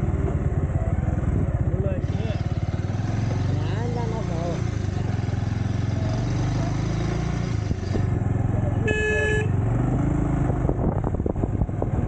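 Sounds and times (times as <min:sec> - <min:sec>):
motorcycle engine running: 0:00.0 - 0:12.0
horn toot: 0:08.8 - 0:09.5.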